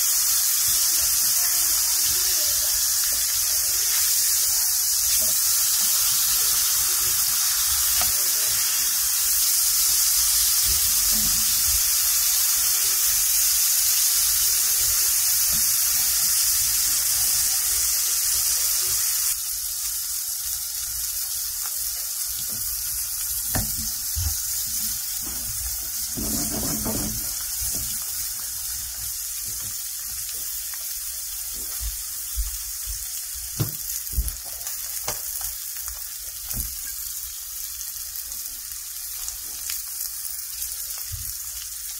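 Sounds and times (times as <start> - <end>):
fish sizzling in a skillet: 0.0 - 41.9.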